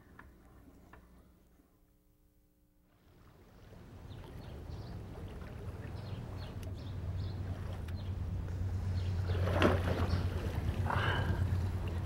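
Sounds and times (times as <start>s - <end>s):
low steady rumble: 0.0s - 12.0s
water splashing and lapping: 2.9s - 12.0s.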